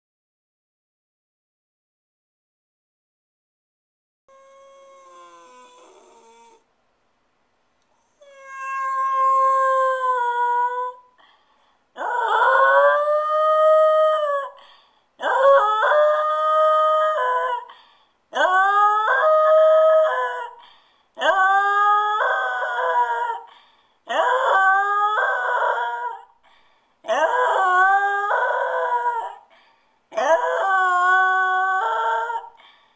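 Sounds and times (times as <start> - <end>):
dog howling: 4.3 - 6.6, 8.2 - 11.1, 12.0 - 14.6, 15.2 - 17.7, 18.4 - 20.6, 21.2 - 23.5, 24.1 - 26.3, 27.1 - 29.5, 30.1 - 32.6.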